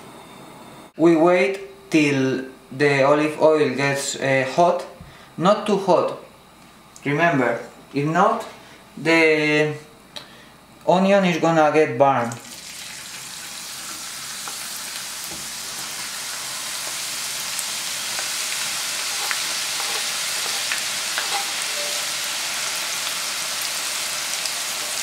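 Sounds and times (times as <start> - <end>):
onion sizzling in a frying pan: 12.4 - 25.0.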